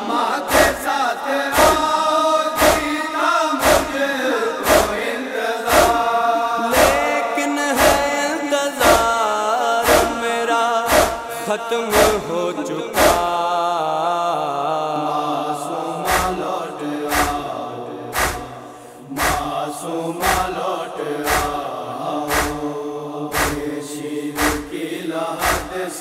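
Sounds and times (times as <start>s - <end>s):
man chanting mournful melody: 0.0s - 26.0s
chest-beating thumps: 0.5s - 0.9s, 1.6s - 1.9s, 2.6s - 2.9s, 3.6s - 4.0s, 4.6s - 5.0s, 5.7s - 6.0s, 6.7s - 7.1s, 7.8s - 8.2s, 8.8s - 9.2s, 9.8s - 10.3s, 10.9s - 12.3s, 13.0s - 13.3s, 16.1s - 16.4s, 17.1s - 17.4s, 18.2s - 18.5s, 19.2s - 19.5s, 20.2s - 20.5s, 21.3s - 21.6s, 22.3s - 22.6s, 23.3s - 23.6s, 24.4s - 24.8s, 25.4s - 25.7s.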